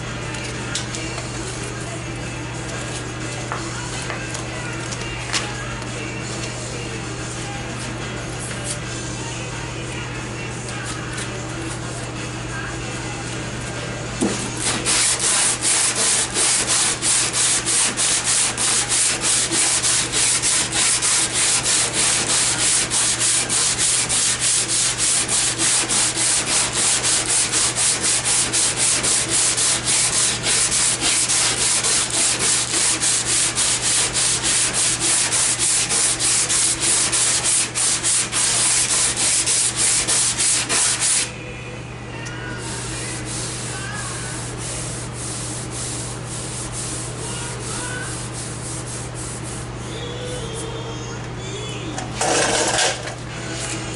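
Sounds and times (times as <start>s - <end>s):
hand sanding with sanding block: 14.2s - 41.3s, 42.6s - 49.8s.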